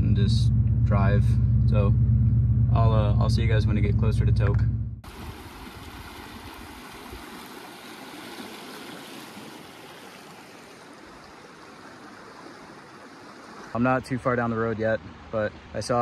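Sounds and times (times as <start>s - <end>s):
river rushing water: 5.1s - 13.8s.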